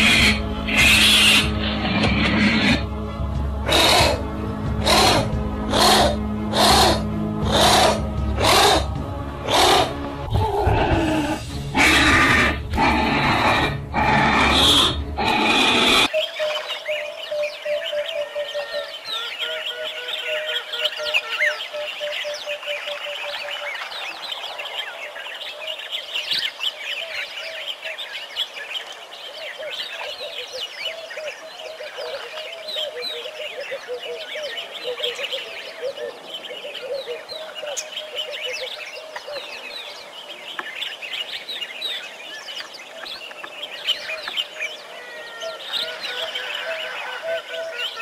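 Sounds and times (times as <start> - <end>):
small birds chirping: 14.4 - 48.0.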